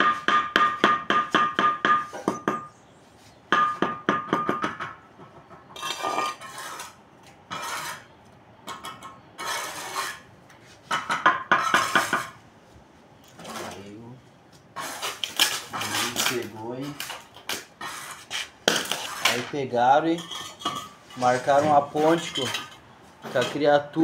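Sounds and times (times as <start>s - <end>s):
scraping: 5.2s - 8.1s, 8.7s - 12.4s, 14.8s - 24.0s.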